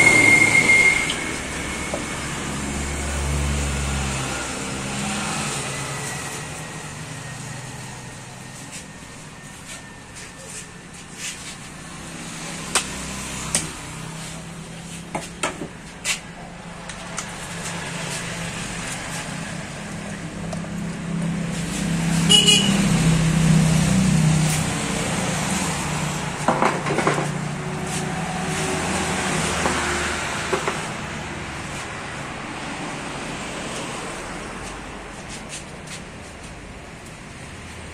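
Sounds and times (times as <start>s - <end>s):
short high toot: 0.0s - 1.9s
vehicle engine humming: 0.0s - 37.9s.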